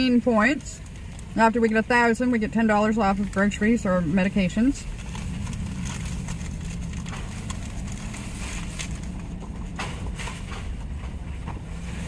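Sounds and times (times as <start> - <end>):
low hum in a vehicle cabin: 0.0 - 12.0
soft clicks and rustles: 4.8 - 12.0.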